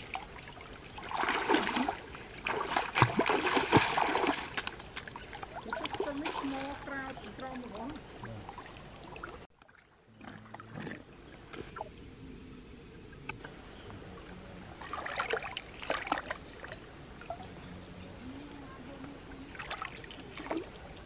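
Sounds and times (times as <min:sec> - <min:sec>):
hand splashing in stream water: 0:01.0 - 0:06.8.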